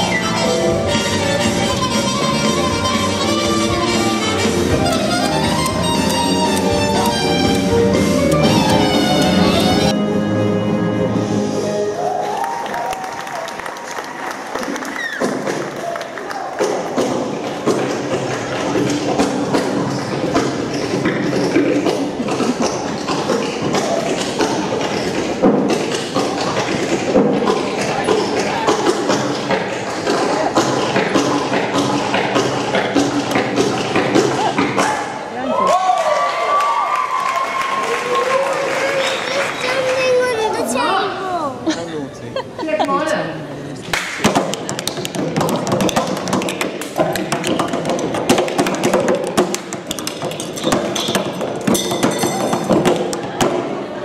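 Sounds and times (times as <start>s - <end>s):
backing music: 0.0s - 12.4s
murmur of voices: 14.4s - 35.7s, 38.2s - 54.0s
sharp taps and knocks: 44.0s - 53.6s.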